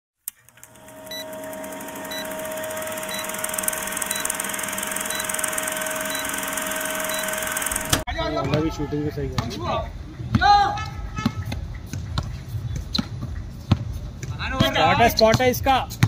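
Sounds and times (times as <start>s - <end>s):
film projector rattle: 0.3s - 8.0s
steady hum tone: 0.4s - 8.1s
short high beeps: 1.0s - 8.2s.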